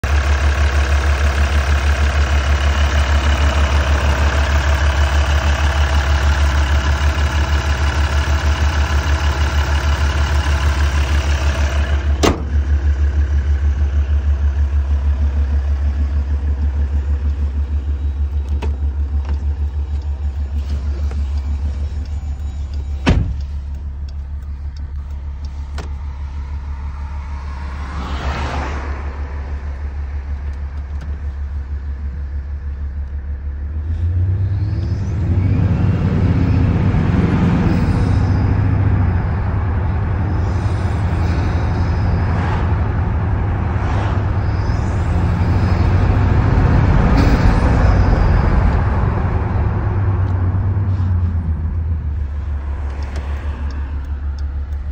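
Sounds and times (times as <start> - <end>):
diesel engine idling: 0.0 - 54.9
heavy thump: 12.1 - 12.7, 23.0 - 23.4.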